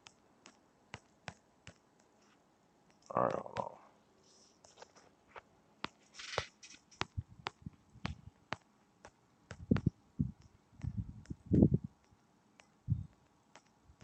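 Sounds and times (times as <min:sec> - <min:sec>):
fingers tapping a smartphone: 0:00.0 - 0:03.8, 0:06.8 - 0:14.0
dull thumps: 0:05.9 - 0:11.8.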